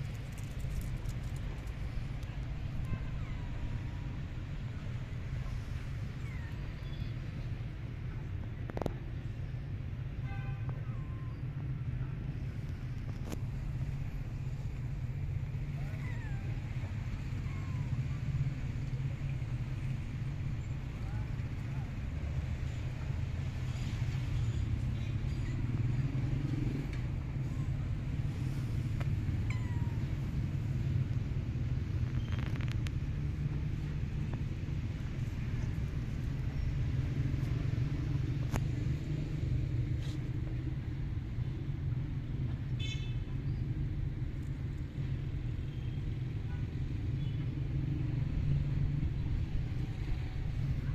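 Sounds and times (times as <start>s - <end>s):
low rumble of background noise: 0.0s - 50.9s
cat meowing: 29.4s - 30.1s.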